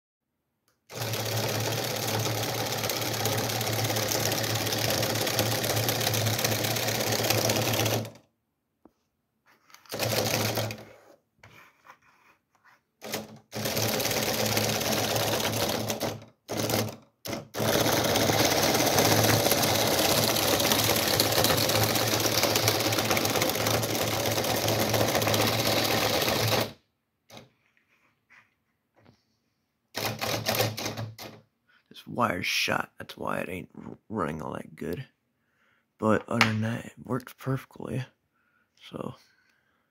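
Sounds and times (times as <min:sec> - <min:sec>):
toy motor clattering and buzzing: 0:00.9 - 0:08.2, 0:13.0 - 0:26.8.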